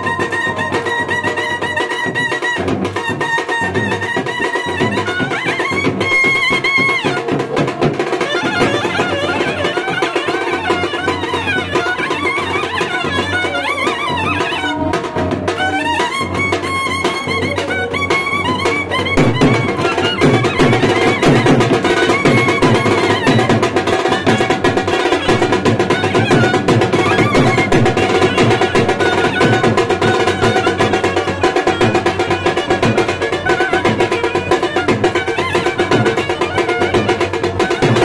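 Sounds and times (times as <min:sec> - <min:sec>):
brass band playing: 0:00.0 - 0:38.0
clarinet and trumpet melody: 0:00.0 - 0:38.0
snare and bass drums: 0:19.1 - 0:38.0.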